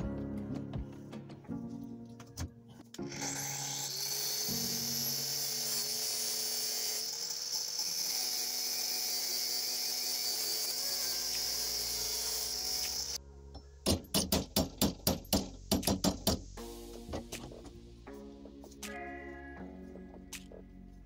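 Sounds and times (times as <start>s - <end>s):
angle grinder cutting metal: 3.0s - 13.2s.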